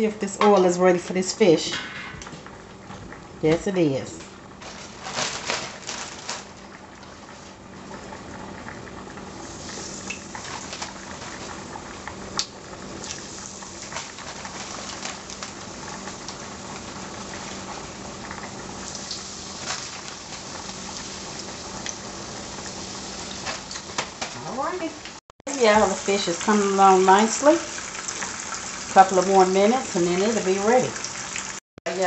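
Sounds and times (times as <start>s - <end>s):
fish frying in oil: 2.3s - 32.0s
oil pops and crackles: 8.7s - 22.0s.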